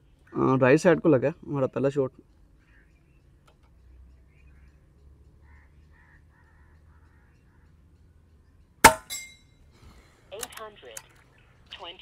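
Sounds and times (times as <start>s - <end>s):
faint bird calls: 2.4s - 8.2s.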